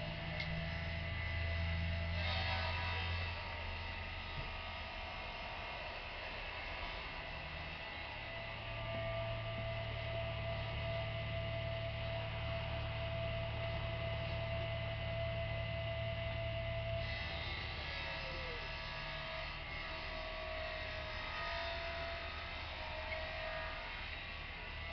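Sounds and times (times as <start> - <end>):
low hum: 0.0 - 22.2.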